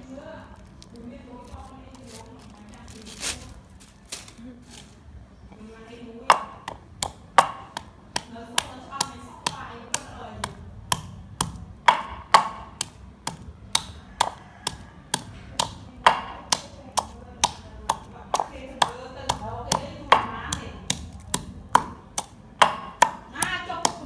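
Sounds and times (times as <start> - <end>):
pestle pounding in wooden mortar: 6.2 - 24.0.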